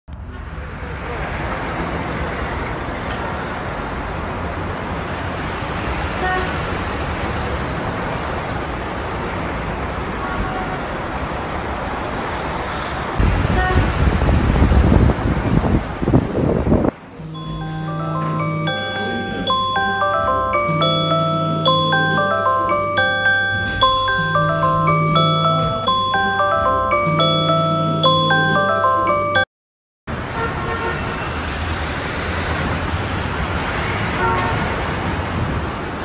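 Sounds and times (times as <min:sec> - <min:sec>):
brief high tones: 0:17.2 - 0:29.5.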